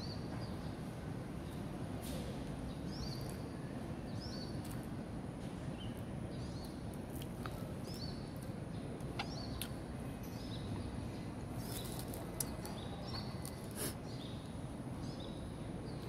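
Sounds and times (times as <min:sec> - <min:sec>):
low outdoor background noise: 0:00.0 - 0:16.0
small birds chirping: 0:00.0 - 0:16.0.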